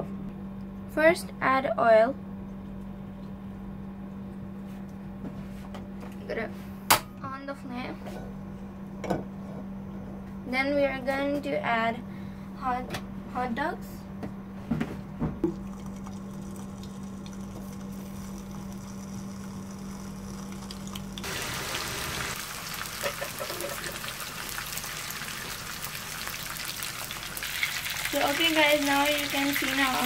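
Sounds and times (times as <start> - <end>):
steady low hum: 0.0 - 23.8
oil sizzling: 15.4 - 30.0.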